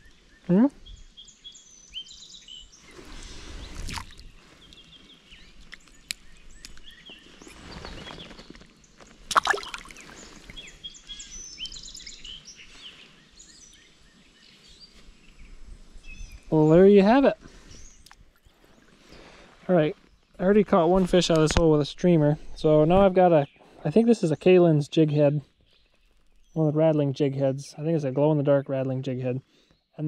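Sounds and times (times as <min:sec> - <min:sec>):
songbirds chirping: 0:00.0 - 0:30.0
water splashing and sloshing: 0:03.0 - 0:04.6, 0:09.2 - 0:10.6.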